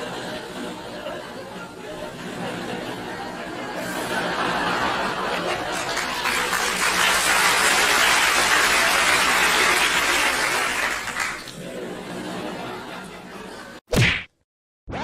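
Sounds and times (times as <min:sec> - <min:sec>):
crowd laughing: 0:00.0 - 0:13.8
crowd applauding: 0:04.7 - 0:11.6.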